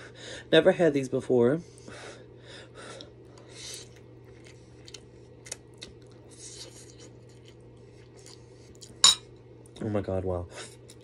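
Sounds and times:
steady low hum: 0:00.0 - 0:11.0
noodles slurped and chewed: 0:03.4 - 0:09.0.

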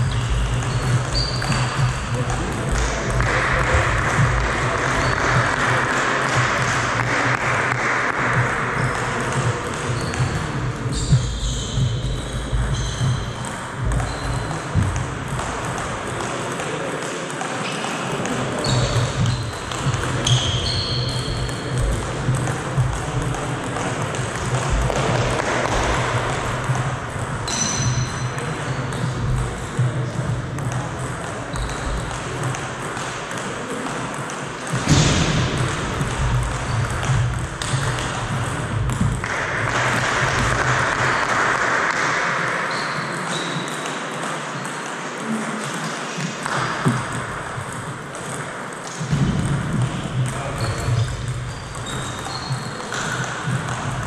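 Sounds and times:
table tennis balls clicking: 0:00.0 - 0:54.0
short high squeaks: 0:00.1 - 0:01.8, 0:20.2 - 0:21.3.

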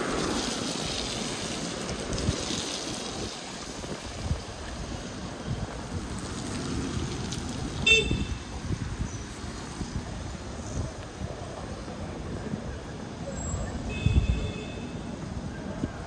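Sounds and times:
city traffic: 0:00.0 - 0:16.0
vehicle horn toot: 0:07.8 - 0:08.5, 0:13.8 - 0:15.0.

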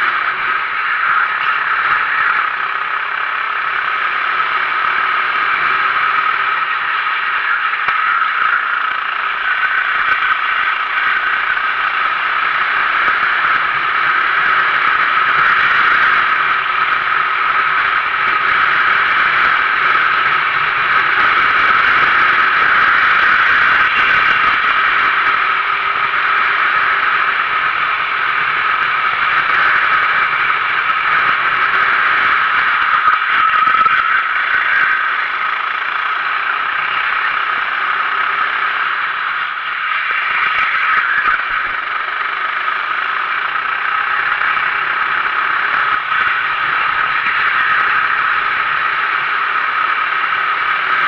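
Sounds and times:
kart engine under load: 0:00.0 - 0:51.0
wind and track noise: 0:00.0 - 0:51.0.

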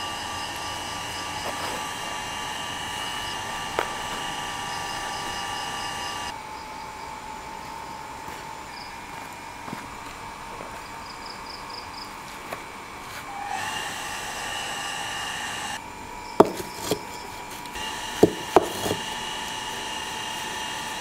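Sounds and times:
steady high tones: 0:00.0 - 0:09.6
bricks clunking into place: 0:16.4 - 0:17.2, 0:18.2 - 0:19.1.

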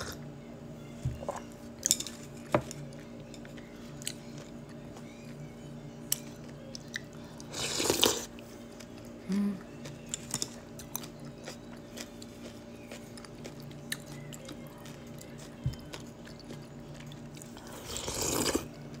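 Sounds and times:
chewing: 0:06.1 - 0:19.0
person humming mm: 0:09.2 - 0:09.7.

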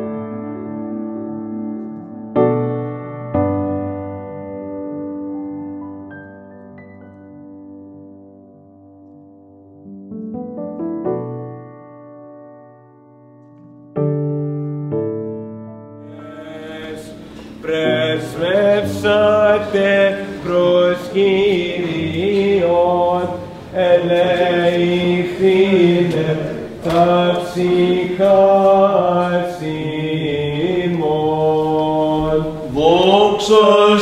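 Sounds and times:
man chanting a hymn: 0:16.1 - 0:34.0.

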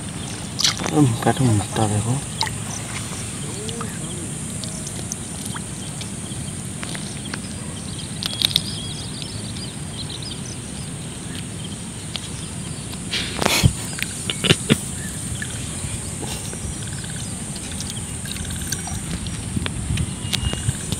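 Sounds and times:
high drone of insects: 0:00.0 - 0:20.9
small clicks and ticks: 0:16.4 - 0:20.9.

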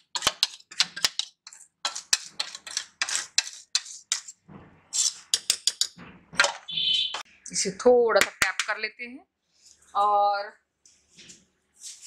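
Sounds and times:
metal spoon scraping steel bowl: 0:00.0 - 0:06.0.

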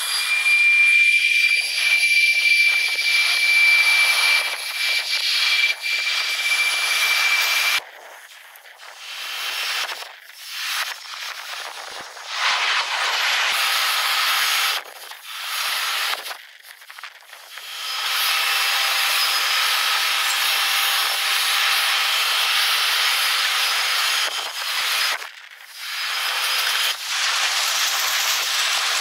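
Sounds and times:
sped-up jet engine hiss: 0:08.8 - 0:14.8.

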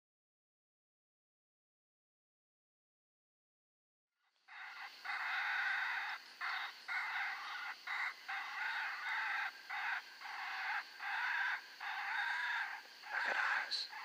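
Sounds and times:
raspy squealing animal distress cries: 0:04.6 - 0:14.0.

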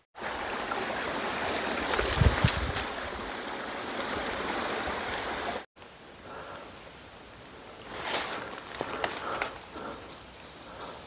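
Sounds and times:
stream trickling over rocks: 0:00.0 - 0:05.7.

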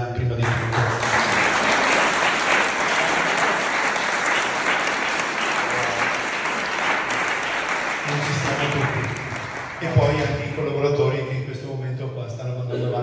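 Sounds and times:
audience applauding: 0:00.4 - 0:10.6.

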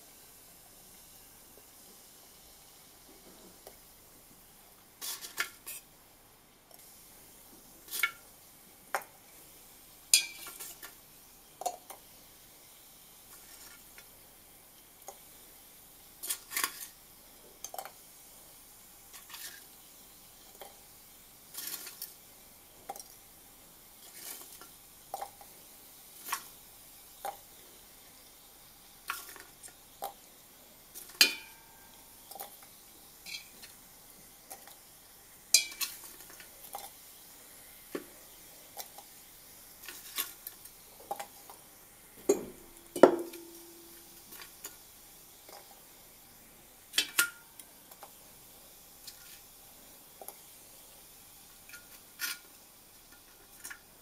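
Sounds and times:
metal tongs tapping glass beakers: 0:10.2 - 0:10.5, 0:31.2 - 0:31.6, 0:35.6 - 0:36.0, 0:42.3 - 0:43.7.

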